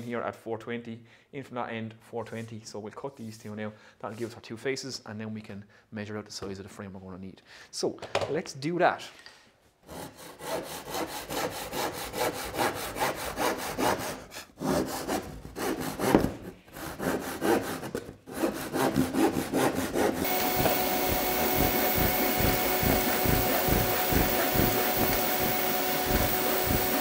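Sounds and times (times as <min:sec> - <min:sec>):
hand saw cutting board: 0:09.8 - 0:27.0
shop vacuum whirring: 0:19.6 - 0:27.0.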